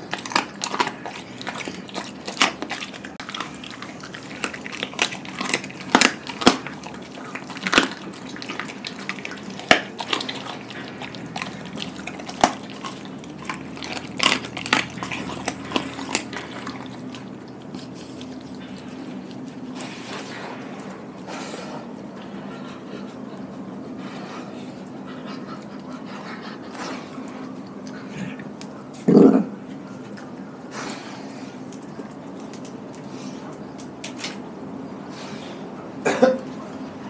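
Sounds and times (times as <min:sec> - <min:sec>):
bone crunches: 0:00.0 - 0:17.3
wet smacking and licking: 0:00.0 - 0:28.8, 0:31.6 - 0:34.5
dog chewing bones: 0:00.0 - 0:34.6.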